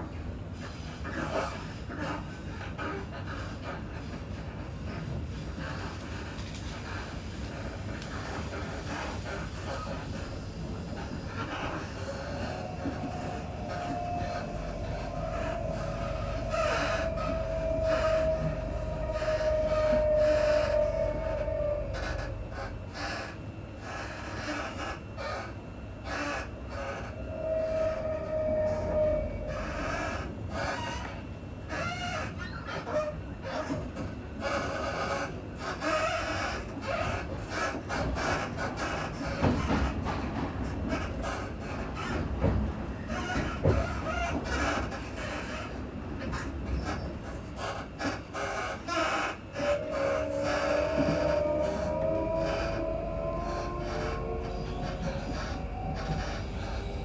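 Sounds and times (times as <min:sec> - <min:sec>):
train wheels rumbling on track: 0:00.0 - 0:57.0
train whine: 0:00.0 - 0:57.0
wavering high squeal: 0:10.6 - 0:23.4, 0:24.0 - 0:31.2, 0:46.7 - 0:57.0.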